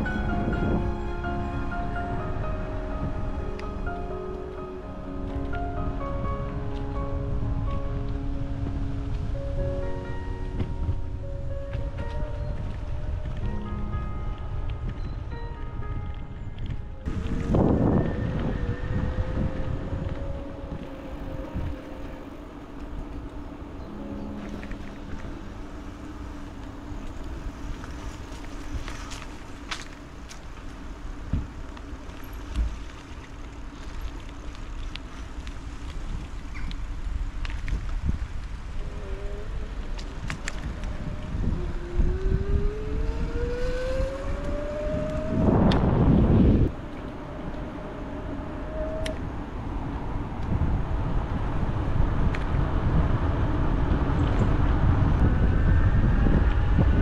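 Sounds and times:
bicycle tyre rumble: 0.0 - 57.0
wind on microphone: 0.0 - 57.0
rising whine: 16.4 - 29.9, 38.8 - 57.0.

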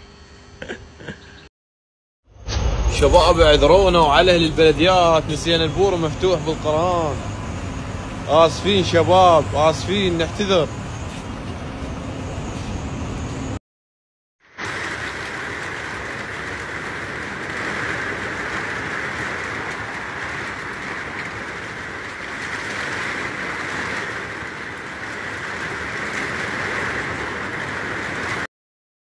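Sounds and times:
rain on a tin roof: 3.2 - 11.7, 14.4 - 28.5.

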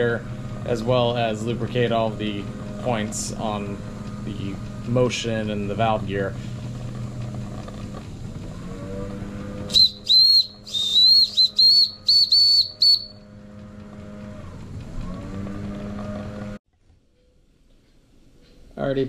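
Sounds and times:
steam engine hum: 0.0 - 16.6
high-pitched steam whistle toots: 9.7 - 13.2.

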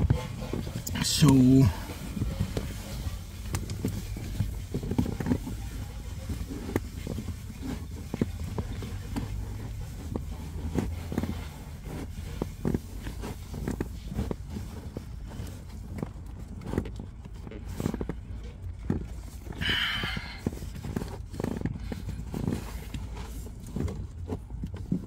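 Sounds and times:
filter scraping and rustling: 0.0 - 25.0
low steady hum: 0.0 - 25.0.

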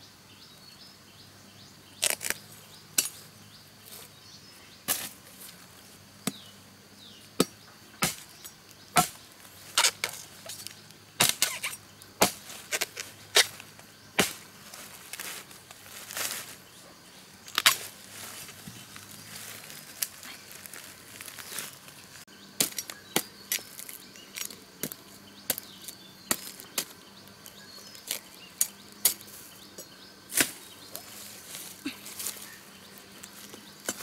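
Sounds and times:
sharp chopping strikes: 7.4 - 9.2, 11.2 - 13.6, 14.2 - 14.4.

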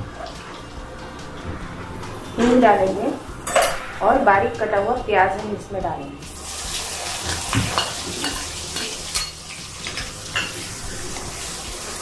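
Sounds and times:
onion sizzling in hot oil: 6.2 - 12.0.

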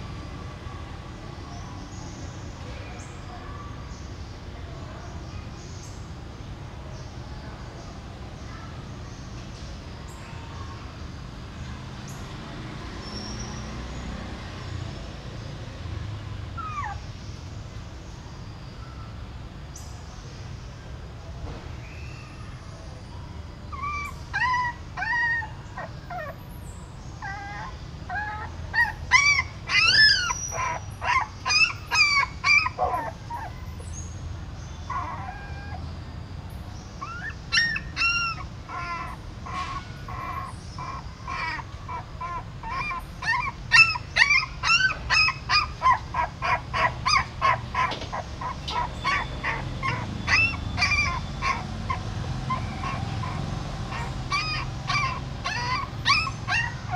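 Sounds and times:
puppies crying: 16.6 - 17.4, 23.7 - 26.5, 27.1 - 34.2, 34.8 - 35.9, 36.8 - 56.9.

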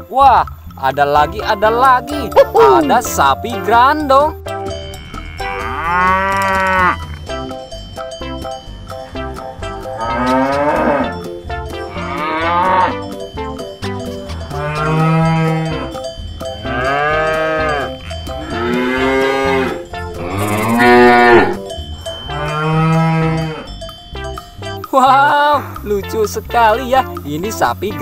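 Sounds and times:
cowbell clinking: 0.0 - 28.0
cow mooing: 4.8 - 7.2, 9.8 - 11.2, 11.8 - 13.0, 14.5 - 16.0, 16.6 - 23.7.

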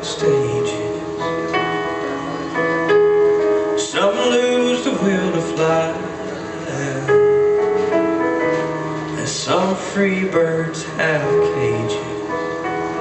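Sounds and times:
electric keyboard piano chords: 0.0 - 13.0.

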